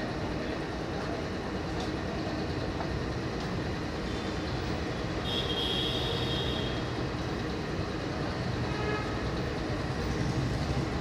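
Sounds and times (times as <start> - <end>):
rumble of trains and traffic: 0.0 - 11.0.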